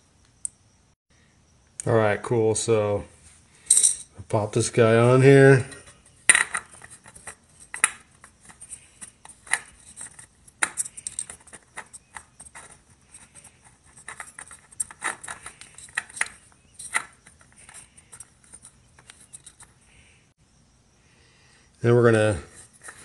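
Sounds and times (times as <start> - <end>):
hands handling oil filter: 5.6 - 20.0, 22.4 - 23.0.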